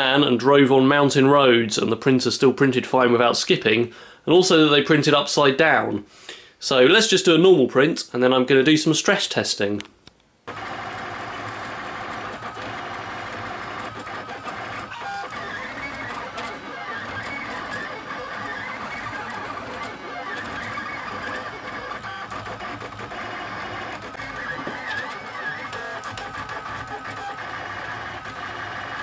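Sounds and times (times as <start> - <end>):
printer stepper motors whirring: 10.5 - 29.0.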